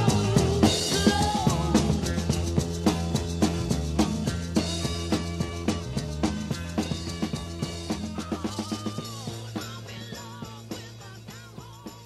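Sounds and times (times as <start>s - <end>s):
bass line: 0.0s - 12.0s
drum kit beat: 0.0s - 12.0s.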